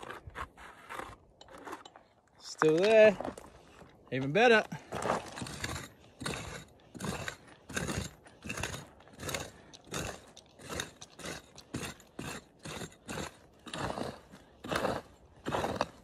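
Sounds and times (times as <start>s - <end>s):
pick hacking into stony dirt: 4.2s - 16.0s.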